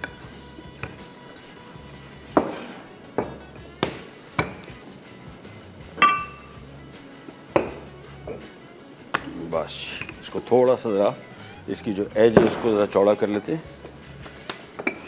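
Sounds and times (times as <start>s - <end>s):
soft background music: 0.0s - 15.0s
rolling pin knocking on worktop: 2.3s - 4.7s, 7.5s - 8.5s, 12.3s - 12.9s
ringing clink: 6.0s - 6.5s.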